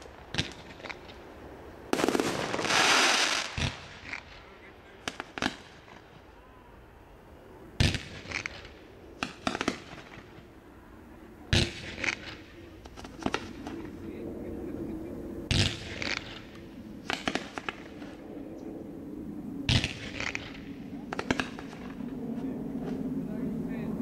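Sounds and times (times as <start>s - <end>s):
fireworks crackling pops: 0.0s - 1.3s, 1.9s - 6.2s, 7.8s - 10.4s, 11.6s - 13.8s, 15.5s - 18.2s, 19.7s - 22.0s
fireworks bangs: 1.9s - 6.3s, 7.8s - 10.5s, 15.5s - 18.2s, 19.7s - 22.0s.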